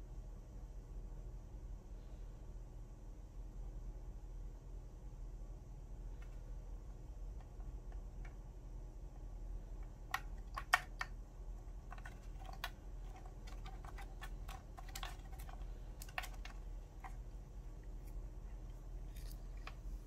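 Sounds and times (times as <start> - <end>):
plastic toy clicks and taps: 9.8 - 11.2, 11.8 - 17.2.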